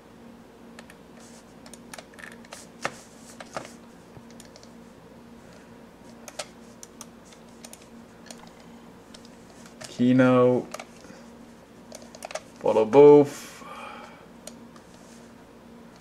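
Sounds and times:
computer mouse clicking: 4.2 - 4.7, 6.2 - 9.4.

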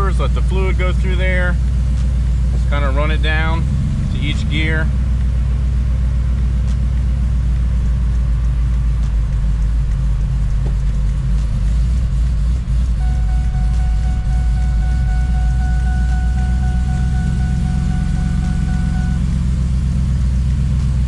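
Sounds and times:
engine idling: 0.0 - 21.0
thin high tone: 13.0 - 19.5.

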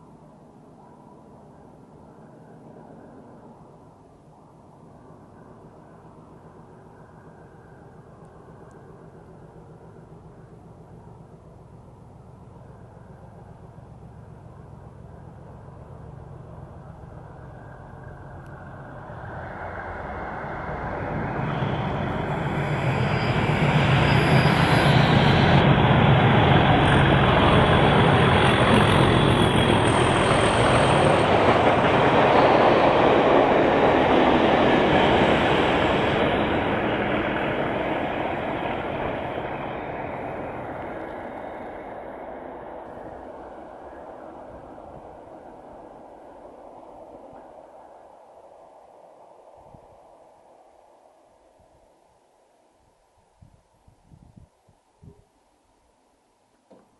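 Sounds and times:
diesel locomotive engine: 0.0 - 50.7
train wheels on rail: 5.0 - 49.2.

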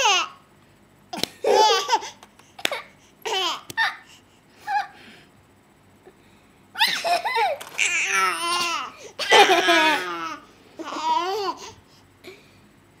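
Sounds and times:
baby babbling and laughing: 6.8 - 11.8.

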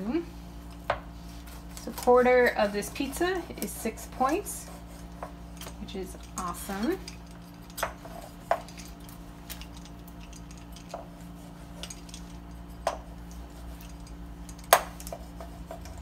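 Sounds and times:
pizza cutter rolling through crust: 0.8 - 16.0.

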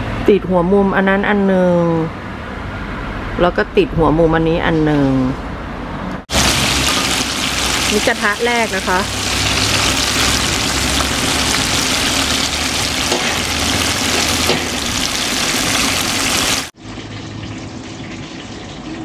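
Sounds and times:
oil sizzling in a wok: 6.3 - 19.0.

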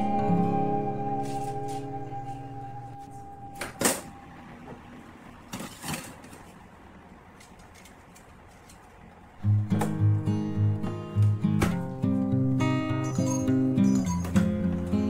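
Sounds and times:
soft guitar music: 0.0 - 4.2, 9.4 - 15.0.

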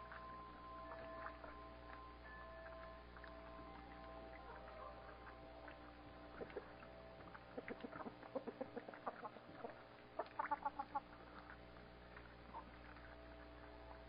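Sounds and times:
faint steady hum: 0.0 - 14.0
chickens clucking: 6.3 - 6.8, 7.5 - 11.1.

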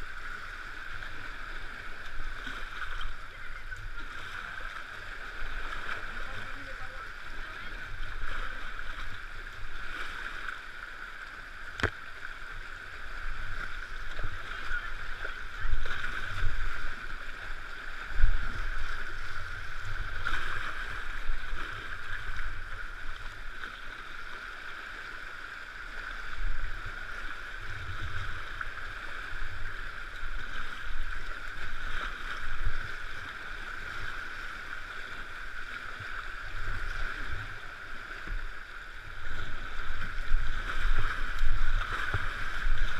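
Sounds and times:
whitewater rushing: 0.0 - 42.9
low thumps and splashes: 35.9 - 42.9.

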